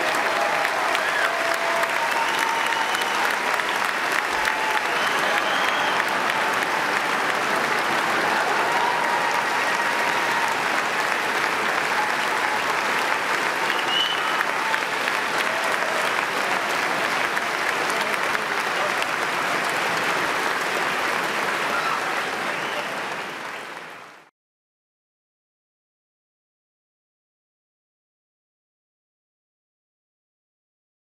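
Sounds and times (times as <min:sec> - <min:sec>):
audience applauding: 0:00.0 - 0:24.3.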